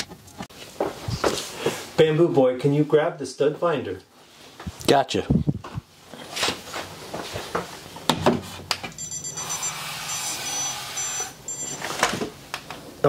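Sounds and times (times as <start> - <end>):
stud finder beeping: 8.9 - 12.2.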